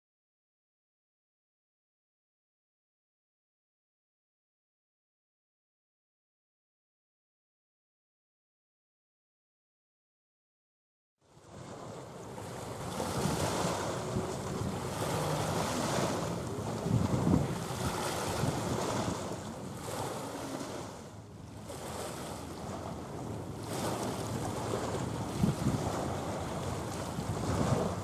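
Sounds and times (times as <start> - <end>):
wind buffeting microphone: 11.4 - 28.0
small waves washing on rocks: 11.5 - 28.0.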